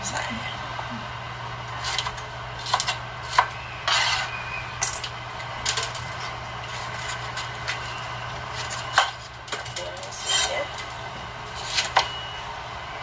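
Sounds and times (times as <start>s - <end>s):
scraping rustle: 5.6s - 12.2s.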